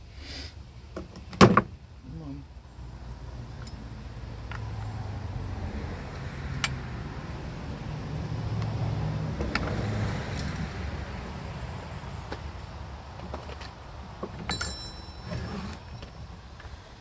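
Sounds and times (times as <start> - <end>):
metal clink ringing: 14.5 - 15.6.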